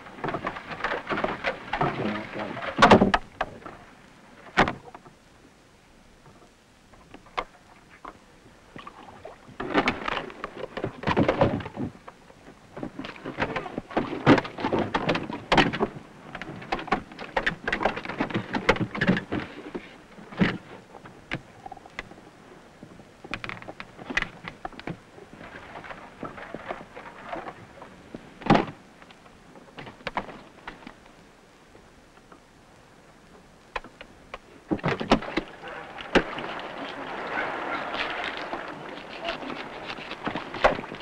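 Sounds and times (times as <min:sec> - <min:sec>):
knocks and thuds on wooden boat planks: 0:00.2 - 0:03.6, 0:04.6 - 0:05.0, 0:12.8 - 0:19.8.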